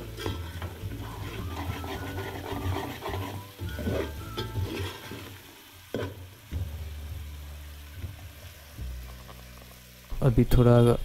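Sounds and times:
ladle scraping metal pot: 0.0s - 6.1s
oil sizzling: 0.0s - 11.0s.

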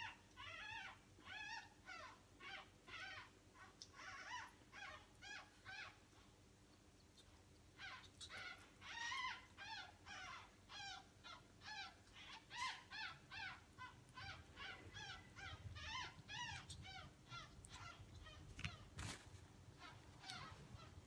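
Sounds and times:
ferret squeaking: 7.2s - 19.2s, 19.8s - 21.0s.

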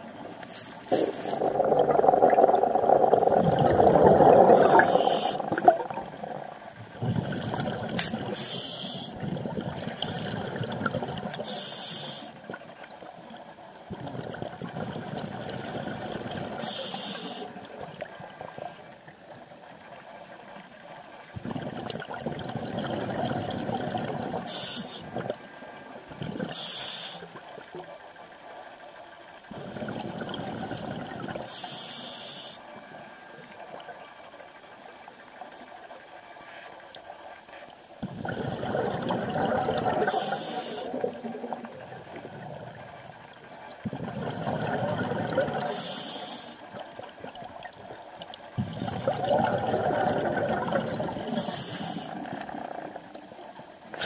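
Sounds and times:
bubbling exhaled air: 0.8s - 12.4s, 13.9s - 17.9s, 21.4s - 25.4s, 29.5s - 32.0s, 38.0s - 43.0s, 43.8s - 46.6s, 48.6s - 53.2s
regulator hissing on inhale: 4.5s - 5.7s, 8.0s - 9.2s, 11.4s - 12.4s, 16.6s - 17.6s, 24.4s - 25.2s, 26.5s - 27.4s, 31.5s - 32.7s, 40.0s - 41.0s, 45.7s - 46.7s, 51.3s - 52.4s.

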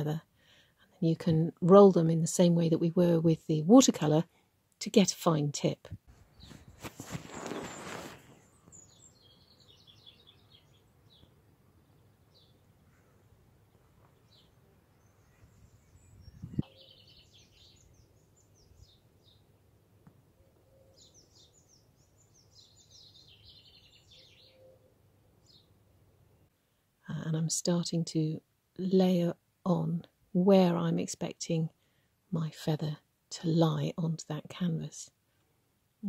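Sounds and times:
rustle: 5.9s - 11.4s
birds chirping: 6.3s - 19.6s, 20.4s - 25.8s.

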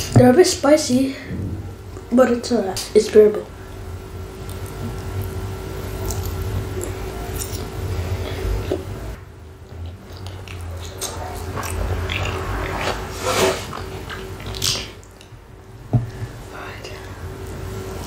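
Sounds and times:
mouth chewing clicks and smacks: 9.7s - 13.0s.

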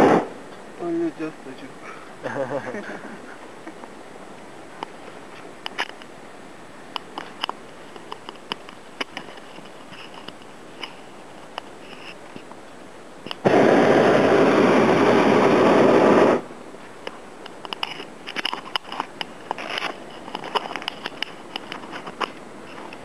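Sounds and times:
propane burner blast: 0.0s - 0.6s, 13.2s - 16.7s
small scattered clicks: 4.8s - 6.1s, 6.9s - 12.6s, 17.0s - 23.0s.

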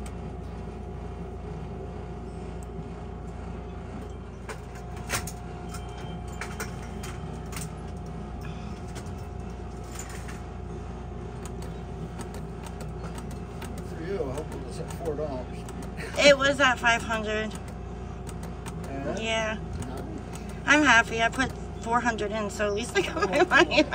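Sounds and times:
faint constant tone: 0.0s - 17.7s
steady low hum: 0.0s - 23.9s.

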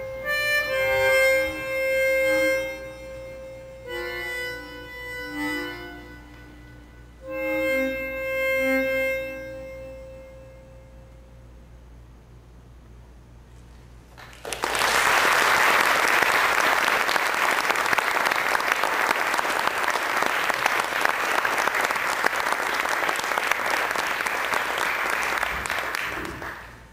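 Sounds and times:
audience applauding: 14.1s - 26.8s.

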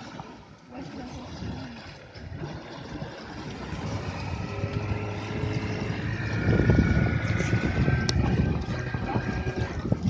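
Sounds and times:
wind rumbling on microphone: 1.0s - 10.0s
motor running: 2.3s - 10.0s.

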